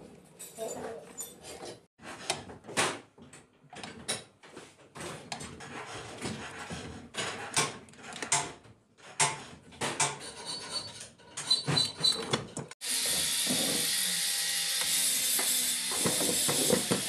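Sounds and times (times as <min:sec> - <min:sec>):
metal clinks and scraping: 0:00.2 - 0:01.9.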